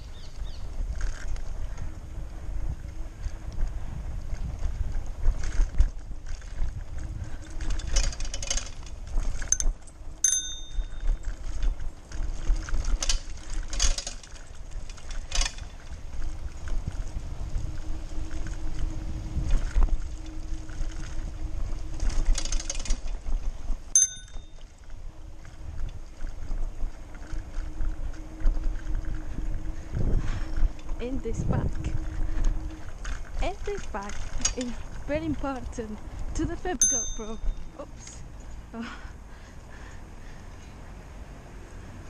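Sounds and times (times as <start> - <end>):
wind buffeting microphone: 0.0 - 38.4
bike rattling over bumps: 0.0 - 41.0
bike riding rumble: 0.0 - 42.0
high ringing bell notes: 10.2 - 11.0, 24.0 - 24.6, 36.8 - 37.7.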